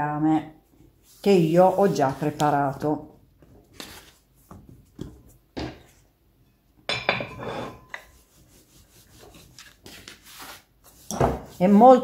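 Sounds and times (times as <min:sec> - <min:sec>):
rolling pin on dough: 0:01.0 - 0:02.6, 0:07.9 - 0:12.0.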